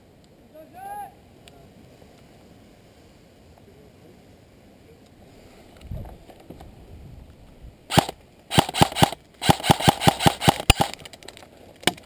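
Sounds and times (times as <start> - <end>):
airsoft rifle firing: 7.9 - 11.0.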